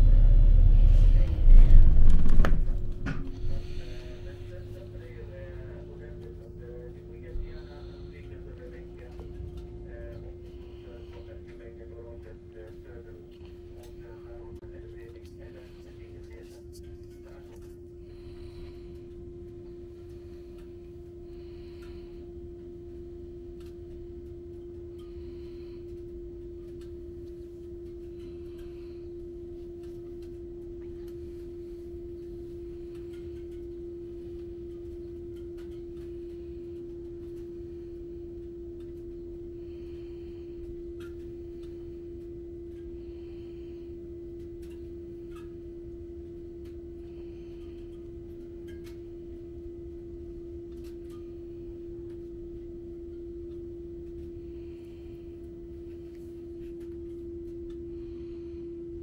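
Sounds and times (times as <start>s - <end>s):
bus engine rumble: 0.0s - 17.5s
steady single-pitched hum: 0.0s - 59.0s.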